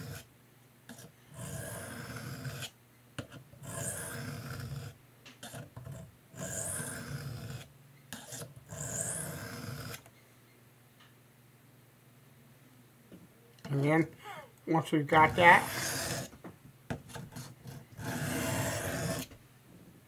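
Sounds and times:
knife scraping sharpening plate: 0:08.2 - 0:09.2.

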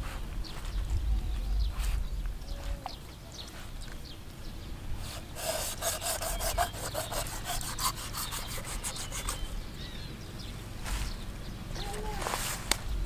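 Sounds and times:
knife sawing on cutting board: 0:05.0 - 0:09.6.

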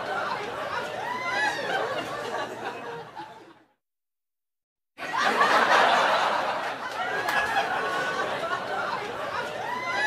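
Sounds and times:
people talking: 0:00.0 - 0:03.2, 0:05.2 - 0:10.0
people laughing: 0:00.0 - 0:03.8, 0:05.0 - 0:10.0.

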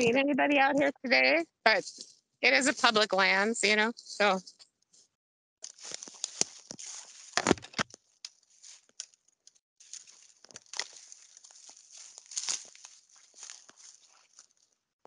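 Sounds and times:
crunch of leaf litter: 0:05.6 - 0:07.6, 0:09.8 - 0:14.8
dry leaves and twigs crackling: 0:05.6 - 0:14.8.

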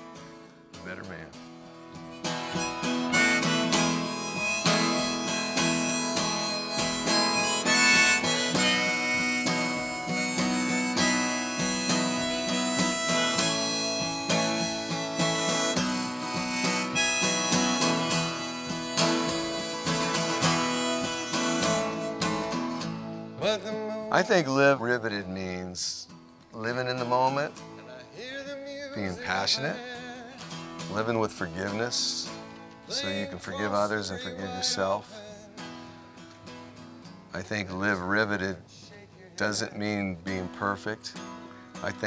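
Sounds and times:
strummed acoustic guitar: 0:00.0 - 0:42.0
harmonica playing: 0:02.1 - 0:24.4, 0:29.0 - 0:32.3, 0:32.9 - 0:35.9.

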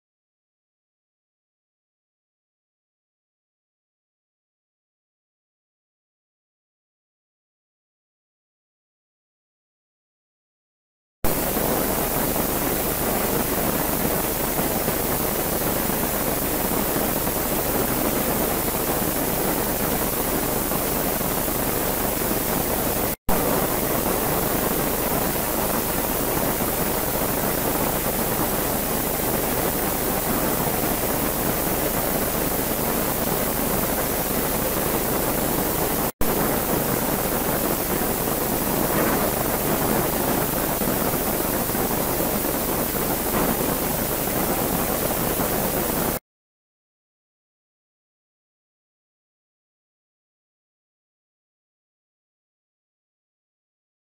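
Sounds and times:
steady loud hiss: 0:11.3 - 0:46.2.

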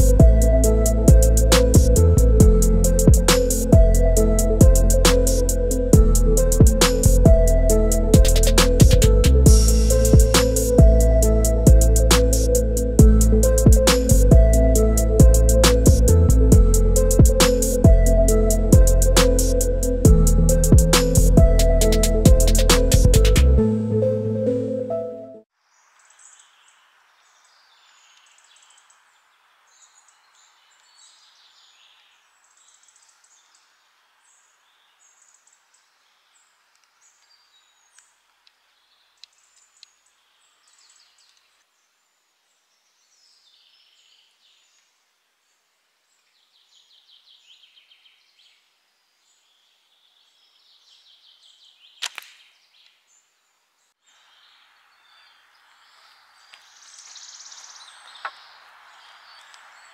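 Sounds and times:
woodland birdsong: 0:00.0 - 0:59.9
slingshot snap: 0:52.0 - 0:53.0.

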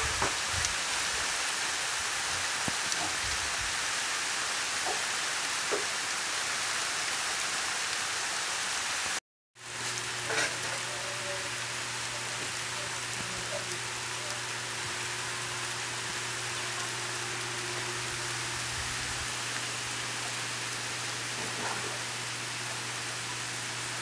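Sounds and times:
steady rain falling: 0:00.0 - 0:24.0.

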